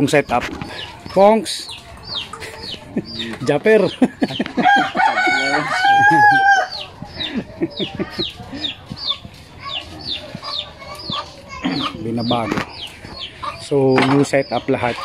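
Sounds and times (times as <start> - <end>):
rooster crowing: 4.6 - 6.9.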